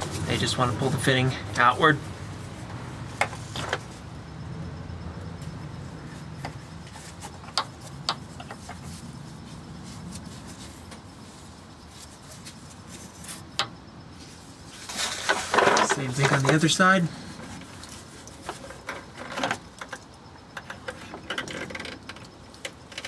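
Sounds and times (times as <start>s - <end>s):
steady low hum: 0.0s - 15.1s.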